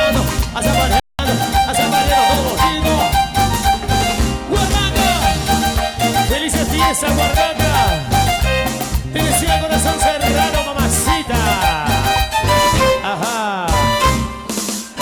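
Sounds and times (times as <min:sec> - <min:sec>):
live band instrumental music: 0:00.0 - 0:15.0
steady percussion beat: 0:00.0 - 0:15.0.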